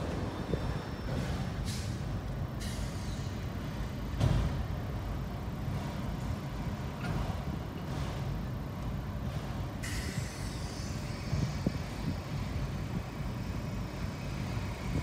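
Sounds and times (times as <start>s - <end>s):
train cars rumbling: 0.0s - 15.0s
heavy knock of train car: 4.1s - 4.8s.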